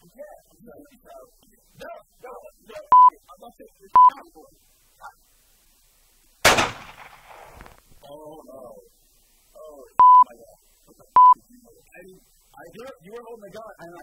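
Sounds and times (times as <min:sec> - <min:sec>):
handgun shot: 0:06.4 - 0:07.8
short loud beeps: 0:10.0 - 0:10.3.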